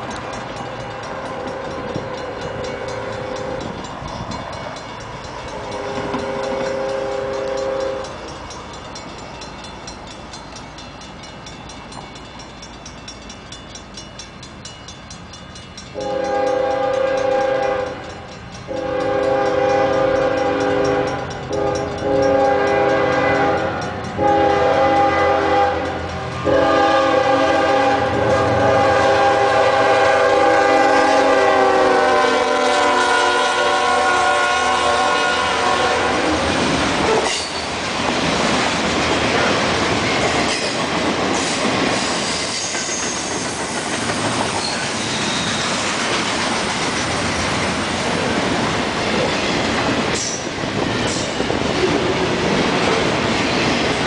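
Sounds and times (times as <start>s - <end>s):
train rumble: 0.0s - 54.0s
train air horn blasts: 5.7s - 8.2s, 16.0s - 18.1s, 18.7s - 36.5s.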